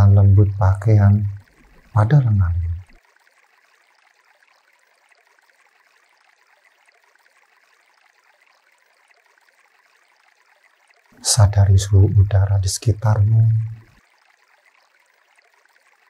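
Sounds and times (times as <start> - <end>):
faint flowing stream water: 0.0 - 16.0.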